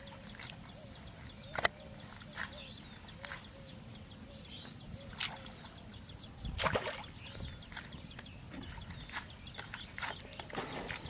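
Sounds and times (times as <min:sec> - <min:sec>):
birds chirping: 0:00.0 - 0:11.0
fish splashing in water: 0:06.6 - 0:07.2.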